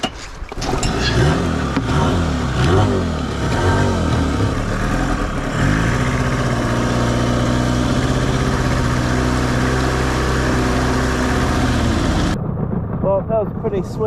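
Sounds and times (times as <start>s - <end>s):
outboard motor running: 0.5s - 14.0s
constant rushing noise: 11.9s - 14.0s.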